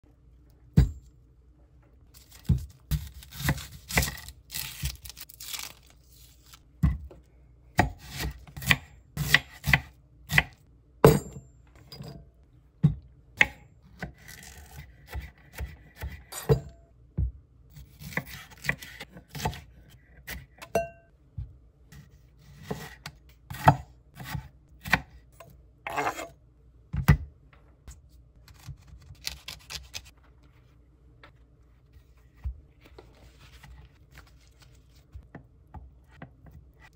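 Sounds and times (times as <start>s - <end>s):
knife chopping on wooden board: 2.3s - 4.2s, 7.8s - 11.3s, 12.8s - 16.6s, 17.8s - 19.6s, 22.0s - 25.2s.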